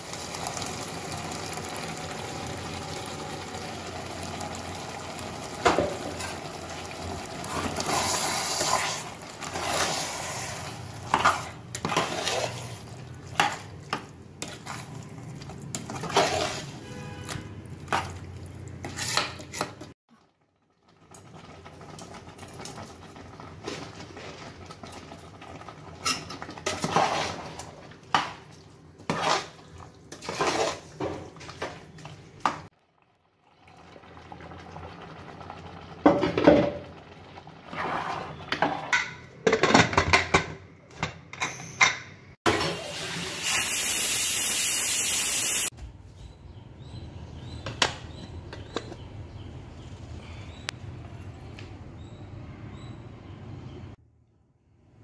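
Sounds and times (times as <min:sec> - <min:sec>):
metal spoon scraping pot: 0:07.8 - 0:13.7, 0:15.8 - 0:16.9, 0:18.8 - 0:19.9
pressure cooker hiss: 0:42.5 - 0:45.7.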